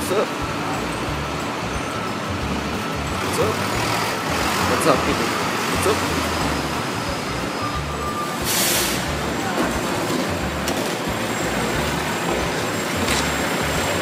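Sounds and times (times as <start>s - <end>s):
city street traffic: 0.0s - 14.0s
short hiss: 8.4s - 9.1s.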